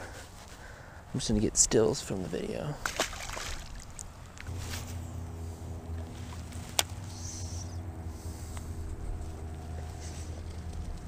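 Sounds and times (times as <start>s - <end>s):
distant engine drone: 2.7s - 11.0s.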